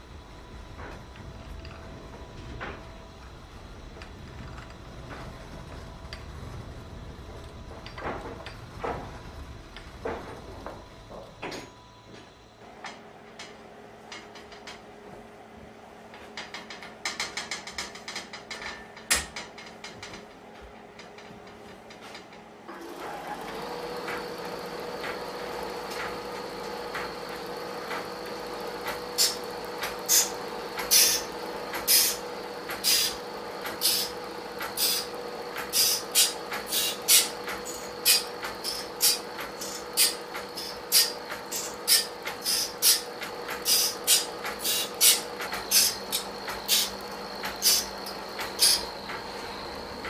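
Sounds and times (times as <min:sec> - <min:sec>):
sawmill machinery humming: 0:22.7 - 0:50.0.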